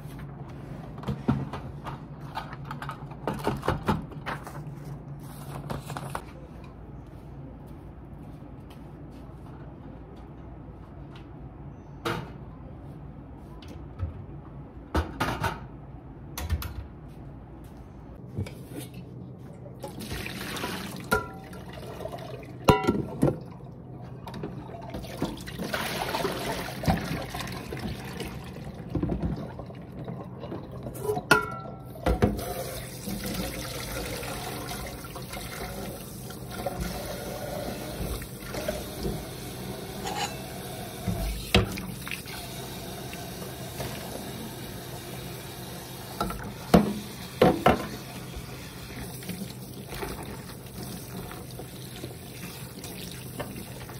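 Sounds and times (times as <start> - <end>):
water pouring: 19.8 - 22.7.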